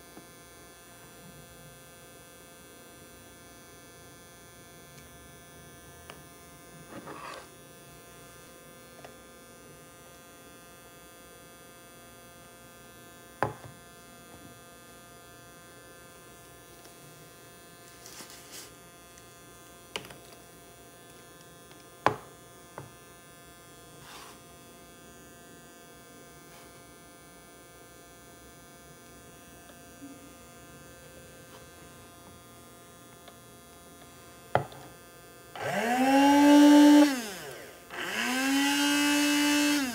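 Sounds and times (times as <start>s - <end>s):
transformer humming buzzily: 35.4s - 39.9s.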